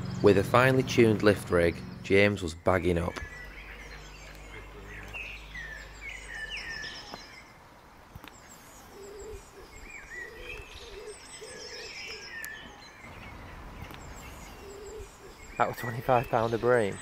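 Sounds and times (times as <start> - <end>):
songbirds chirping: 0.0 - 17.0
low cooing call: 3.2 - 7.5, 8.5 - 16.5.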